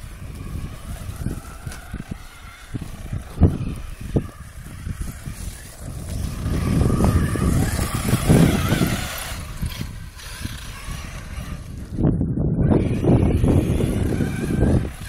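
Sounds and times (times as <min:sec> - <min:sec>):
tyres scrabbling on soil: 0:00.0 - 0:12.0
electric motor whine: 0:00.0 - 0:15.0
low rumble: 0:00.0 - 0:15.0.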